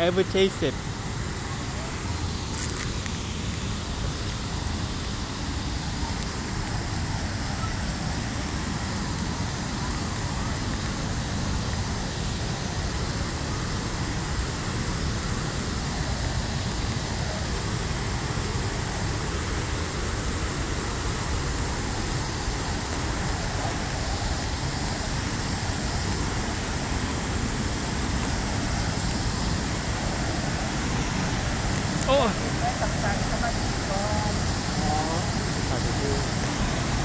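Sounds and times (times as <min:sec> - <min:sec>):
waterfall rushing: 0:00.0 - 0:37.0.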